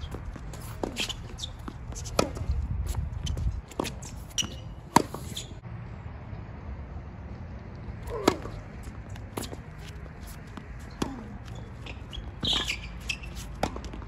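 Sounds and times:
tennis ball bouncing on hard court: 0.0 - 5.5, 8.1 - 14.0
tennis ball hit with racket: 0.6 - 2.6, 3.7 - 5.5, 8.0 - 14.0
brief high squeak: 4.3 - 5.6, 11.5 - 13.5.

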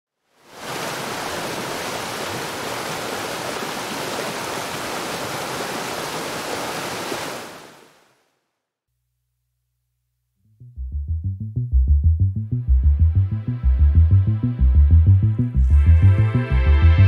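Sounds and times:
rushing water: 0.2 - 8.2.

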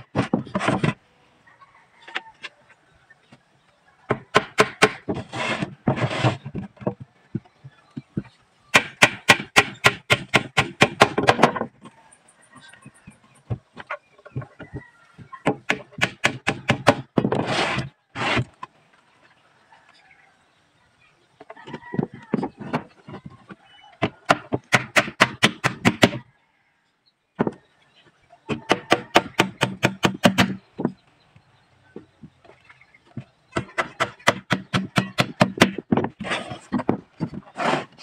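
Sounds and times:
hammer driving nails into plywood: 4.1 - 6.0, 8.7 - 11.6, 15.5 - 18.5, 24.0 - 26.2, 28.5 - 30.9, 33.5 - 37.9.

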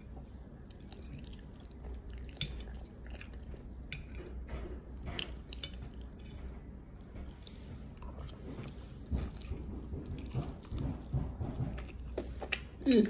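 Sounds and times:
close-up chewing of food: 0.0 - 12.9.

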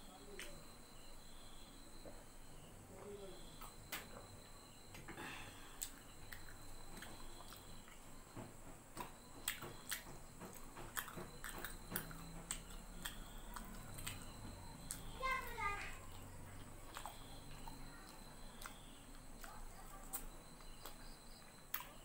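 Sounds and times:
person chewing food: 4.4 - 15.1, 15.9 - 22.0.

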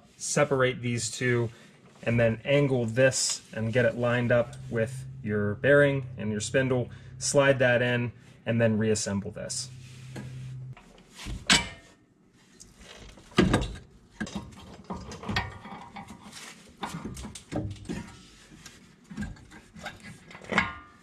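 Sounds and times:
metal clanks and knocks: 13.2 - 18.2.

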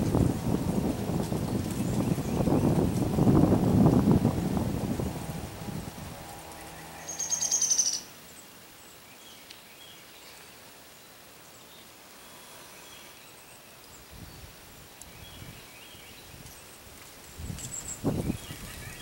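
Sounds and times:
faint distant bird chirps: 6.4 - 16.8
bird trill: 6.6 - 8.1.

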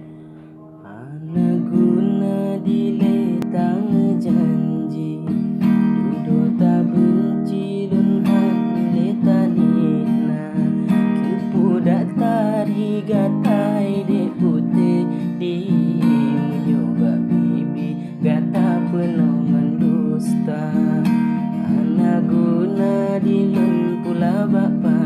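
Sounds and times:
acoustic guitar strumming chords: 0.0 - 25.0.

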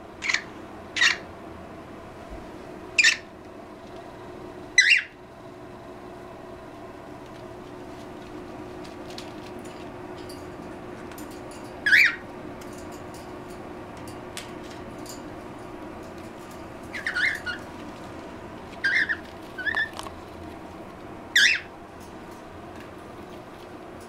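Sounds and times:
parrot chirps: 0.2 - 1.2, 3.0 - 3.3, 4.8 - 5.2, 11.8 - 12.2, 16.9 - 17.6, 18.8 - 20.0, 21.3 - 21.7.

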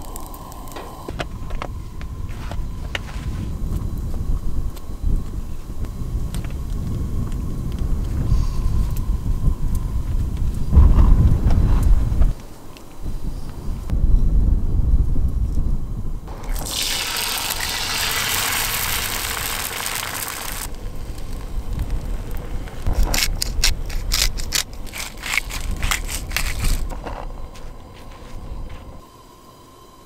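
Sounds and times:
hot fat crackling pops: 0.0 - 8.2, 16.3 - 27.9
egg sizzling in a skillet: 16.3 - 23.2.

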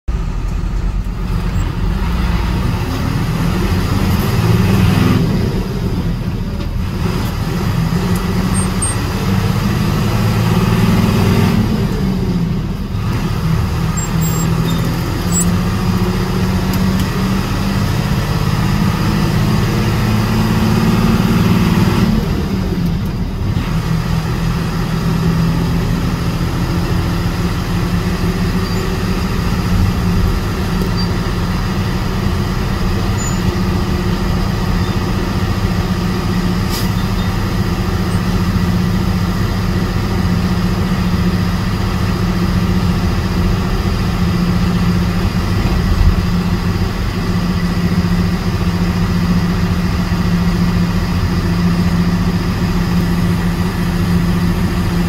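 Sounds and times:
bus engine: 0.0 - 55.0
road rumble: 0.0 - 55.0.

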